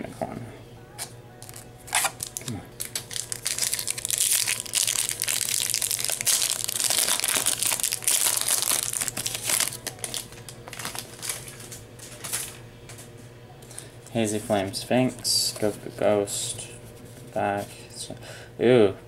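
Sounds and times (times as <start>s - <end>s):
foil wrapper crinkling and tearing: 1.4s - 12.5s.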